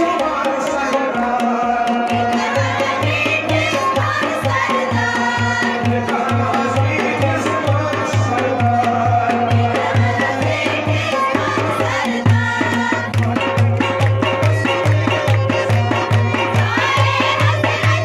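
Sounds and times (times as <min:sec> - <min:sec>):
man singing: 0:00.0 - 0:02.4, 0:05.7 - 0:11.8
clay-pot drum beat: 0:00.0 - 0:18.0
small hand drum: 0:00.0 - 0:18.0.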